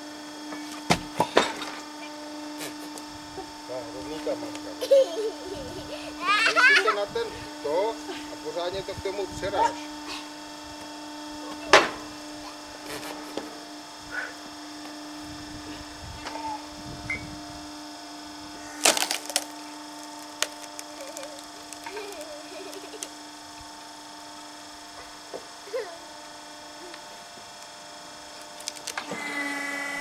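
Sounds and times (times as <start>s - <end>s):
log splitter motor hum: 0.0s - 30.0s
wood splitting with sharp cracks: 0.7s - 1.8s, 18.7s - 23.2s, 27.6s - 29.3s.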